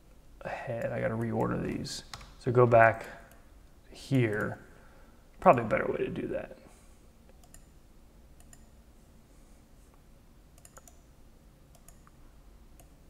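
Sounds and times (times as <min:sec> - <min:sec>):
computer mouse clicking: 0:07.3 - 0:07.8, 0:08.4 - 0:08.7, 0:10.6 - 0:11.1, 0:11.7 - 0:13.0.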